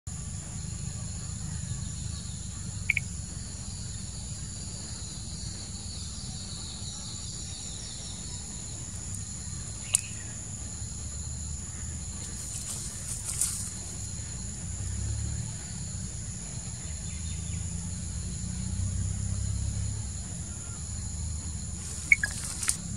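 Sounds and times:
high-pitched insect drone: 0.3 - 22.9
short chirp: 21.9 - 22.9
sharp click: 22.0 - 22.8.

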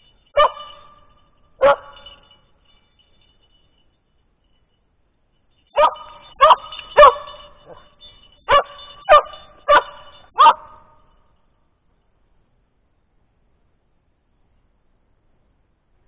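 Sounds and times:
dog barking: 0.4 - 1.0, 1.6 - 2.3, 5.8 - 11.0.

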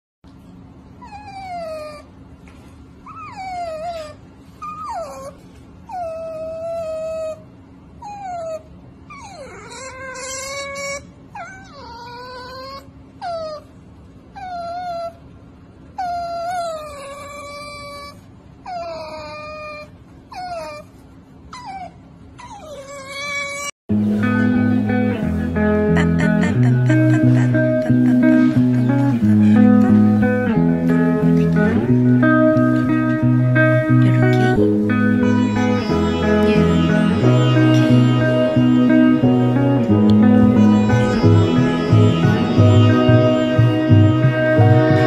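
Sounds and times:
acoustic guitar music: 23.9 - 45.0.

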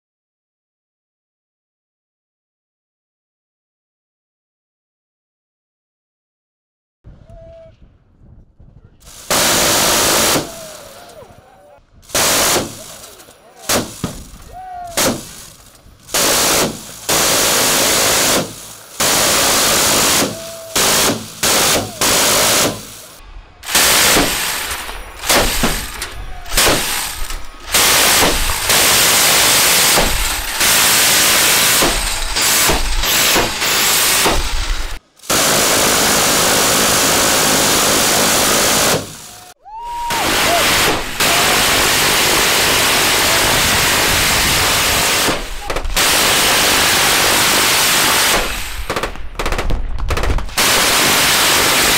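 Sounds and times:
rotary machine gun bursts: 9.0 - 11.2, 12.1 - 39.3, 40.1 - 51.9.

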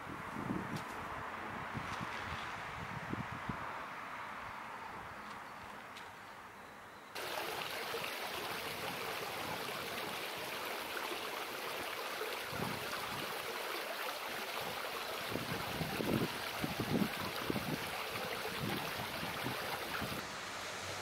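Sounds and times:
wind buffeting microphone: 0.0 - 3.6, 12.5 - 13.4, 14.7 - 20.2
fountain water splashing: 7.2 - 20.2.

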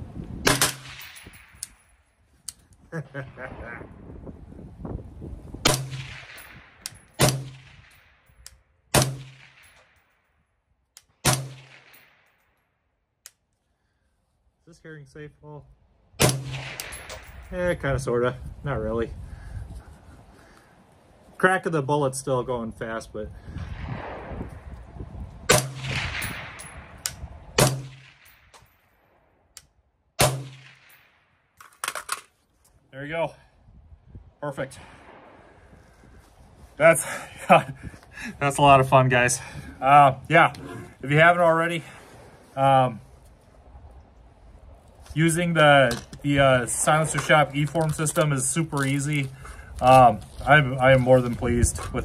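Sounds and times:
suppressed rifle shots: 0.4 - 1.6, 5.6 - 8.1, 8.9 - 9.9, 11.2 - 12.2, 16.2 - 17.4, 25.5 - 27.0, 27.6 - 28.7, 30.2 - 31.2.

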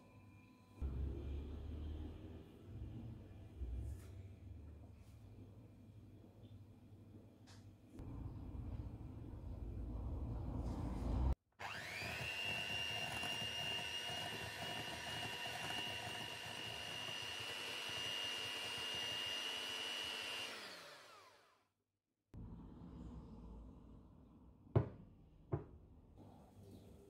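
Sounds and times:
electric hand mixer whining: 11.6 - 21.6.

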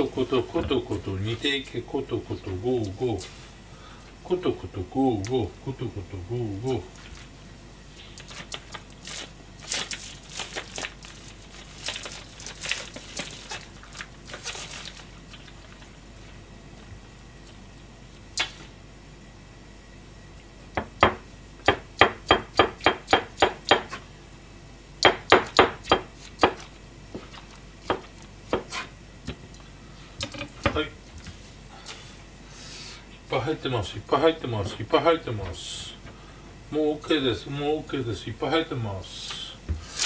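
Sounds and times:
plastic packaging crinkling: 8.2 - 16.0
knife chopping on cutting board: 20.8 - 24.0, 25.1 - 29.4.

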